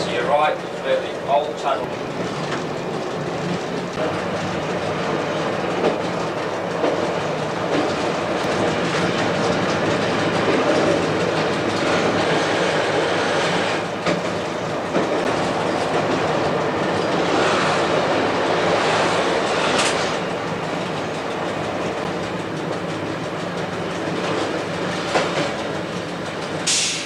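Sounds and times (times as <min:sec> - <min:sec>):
railcar engine and wheels running: 0:00.0 - 0:27.0
short hiss: 0:26.7 - 0:27.0.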